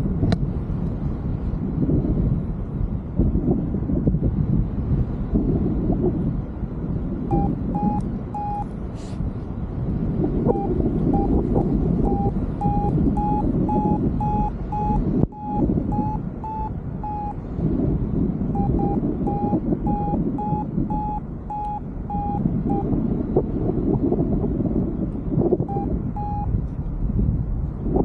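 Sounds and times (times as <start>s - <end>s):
wind rumble on microphone: 0.0s - 28.0s
variometer beeping: 7.2s - 8.8s, 10.4s - 17.6s, 18.5s - 23.0s, 25.4s - 26.6s.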